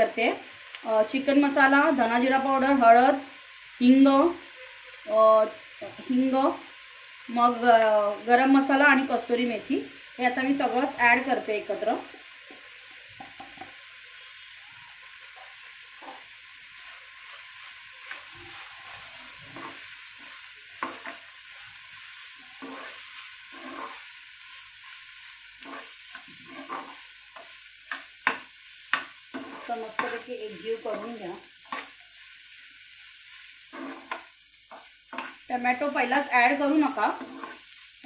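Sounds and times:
onions sizzling in oil: 0.0s - 38.0s
spatula scraping a pan: 15.3s - 32.5s, 33.2s - 38.0s.

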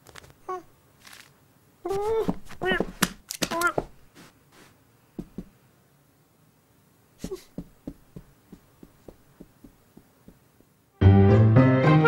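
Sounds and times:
soft cartoon footsteps: 0.0s - 5.6s, 7.2s - 10.8s.

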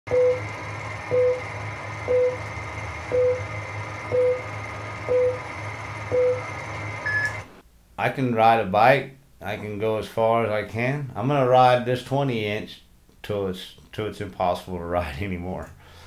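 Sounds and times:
steady hum and hiss: 0.2s - 16.0s
short beeps: 3.1s - 3.4s, 4.1s - 4.4s, 6.1s - 7.5s.

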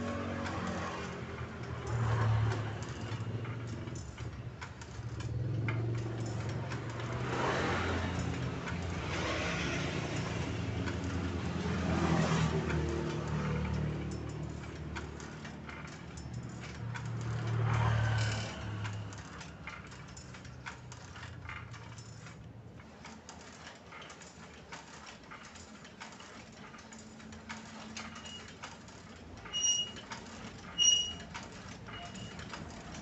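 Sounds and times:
light metal clicks and rattles: 0.0s - 33.0s
short high squeaks: 29.4s - 32.5s.

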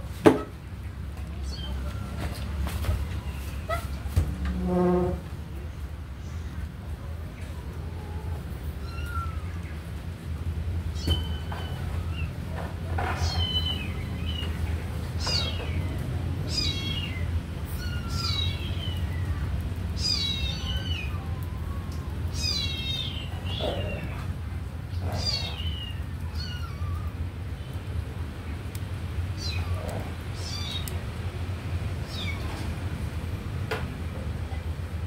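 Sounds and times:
kitten meowing: 8.8s - 9.5s, 16.5s - 18.6s, 25.2s - 27.2s.

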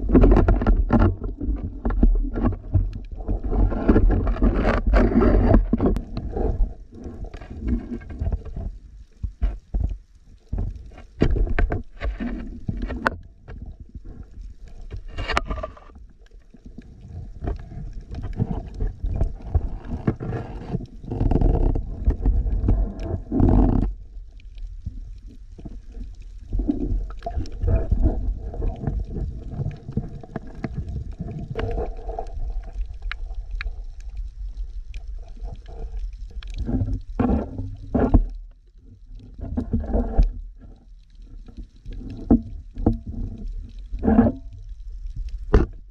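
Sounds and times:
sharp underwater clicks and knocks: 0.0s - 45.9s
underwater rumbling water movement: 0.0s - 45.9s.

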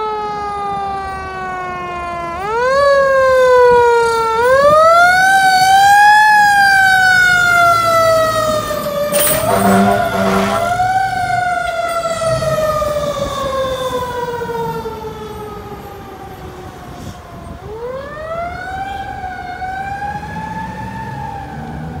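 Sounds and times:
fire engine siren wailing: 0.0s - 22.0s
truck horn blasts: 9.1s - 12.5s.

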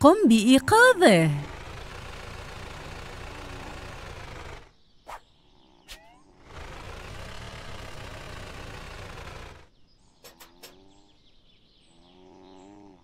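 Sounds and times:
cartoon engine running: 0.0s - 4.7s, 6.5s - 9.7s.

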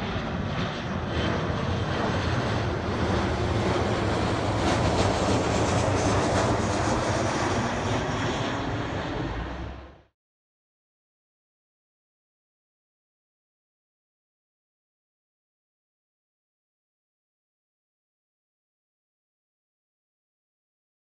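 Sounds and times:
jet engines roaring overhead: 0.0s - 10.1s.

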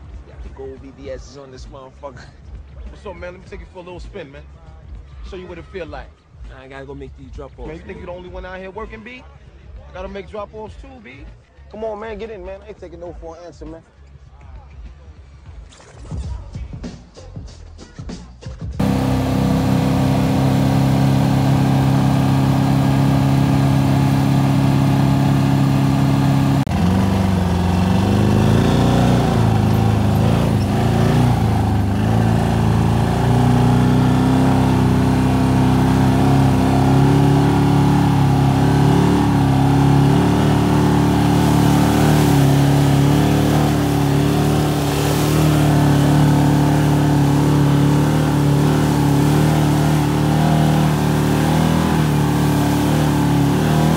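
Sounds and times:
atv engine revving: 18.8s - 53.9s.

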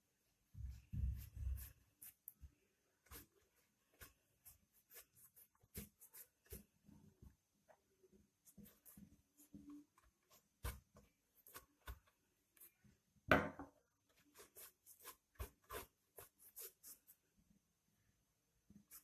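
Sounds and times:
paintbrush dabbing paint: 0.3s - 19.0s
brush scrape: 0.7s - 2.4s, 3.0s - 7.0s, 14.2s - 17.2s.

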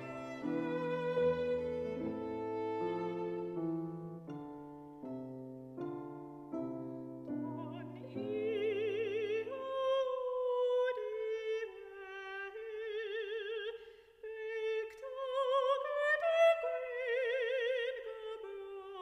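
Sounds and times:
soprano singing with vibrato: 0.0s - 3.6s, 7.3s - 19.0s
piano chords: 0.0s - 9.4s.

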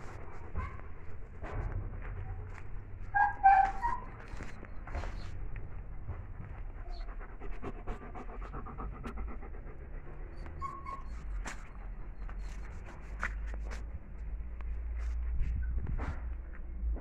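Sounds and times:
dog panting: 4.3s - 13.4s.

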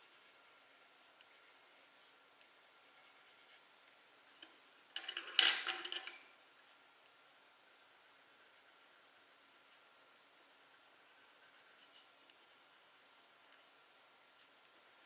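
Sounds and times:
rubbing and light clattering: 0.0s - 6.8s
faint room hiss: 0.0s - 15.0s.

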